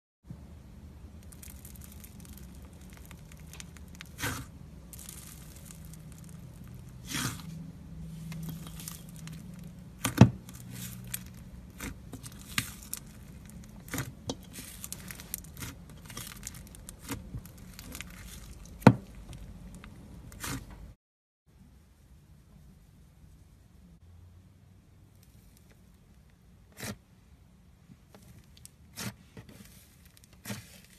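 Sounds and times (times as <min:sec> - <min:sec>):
slime squishing and tearing: 0:01.2 - 0:07.6, 0:08.2 - 0:20.7, 0:28.2 - 0:30.9.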